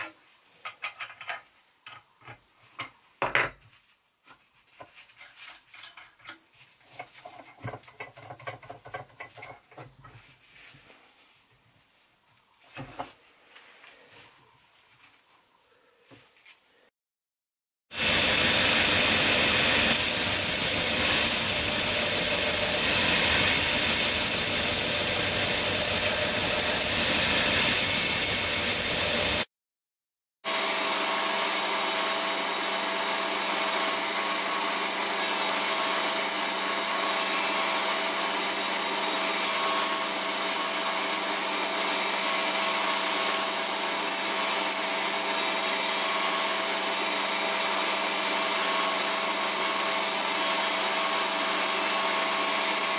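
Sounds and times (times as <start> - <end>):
belt grinder sanding wood: 18.0 - 29.5, 30.5 - 52.9.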